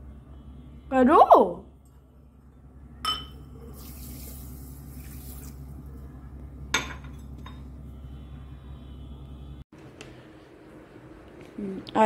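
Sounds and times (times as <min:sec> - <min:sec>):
mug clinking on stone counter: 0:03.0 - 0:03.4
water pouring into a bowl: 0:03.7 - 0:05.7.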